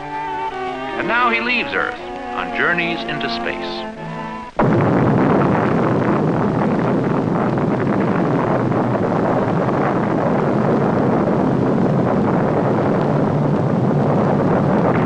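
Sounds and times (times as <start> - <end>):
rocket engines rumbling: 0.0 - 15.0.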